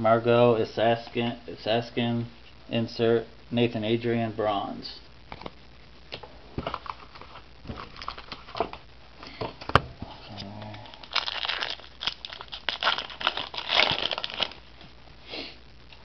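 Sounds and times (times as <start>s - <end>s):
foil wrappers crinkling: 6.6s - 9.4s, 10.4s - 14.9s.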